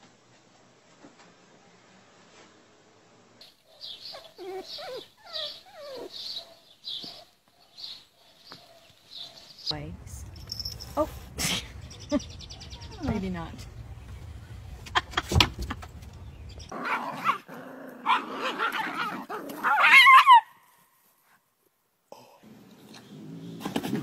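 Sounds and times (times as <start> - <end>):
young pets squealing and whining: 4.0 - 6.6, 16.8 - 20.5
wind rumble on microphone: 9.7 - 16.7.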